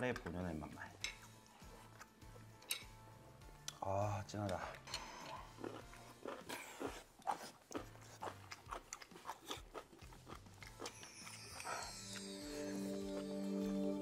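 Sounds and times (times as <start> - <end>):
chewing food: 4.5 - 13.7.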